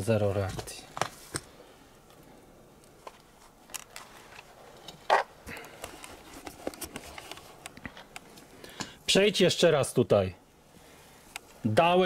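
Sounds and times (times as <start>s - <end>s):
soft clicks and rustles: 0.4s - 9.0s.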